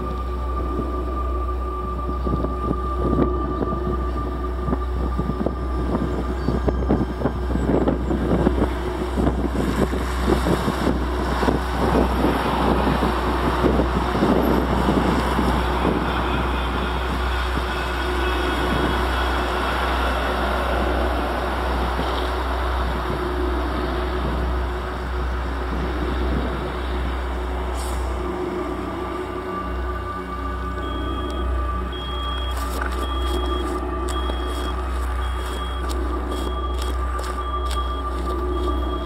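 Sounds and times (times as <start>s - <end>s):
constant low drone: 0.0s - 39.0s
steady hums: 0.0s - 39.0s
dense crackling noise: 30.8s - 39.0s.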